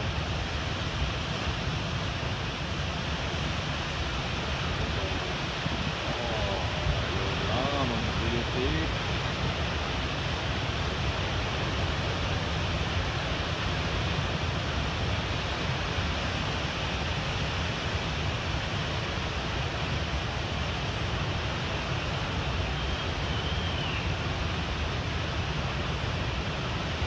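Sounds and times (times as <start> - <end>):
wind: 0.0 - 27.0
ocean surf breaking: 3.1 - 10.2.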